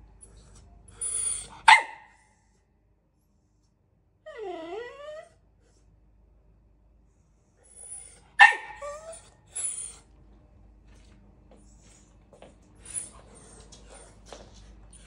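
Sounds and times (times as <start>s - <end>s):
dog whining: 0.9s - 1.6s, 4.2s - 5.8s, 7.6s - 10.1s
dog barking: 1.6s - 2.2s, 8.4s - 9.1s.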